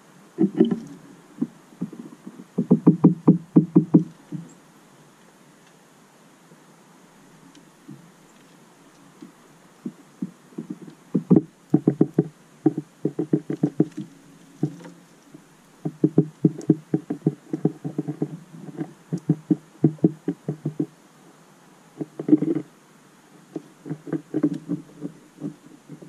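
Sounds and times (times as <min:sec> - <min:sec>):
beak knocking on feeder: 0:19.1 - 0:20.9.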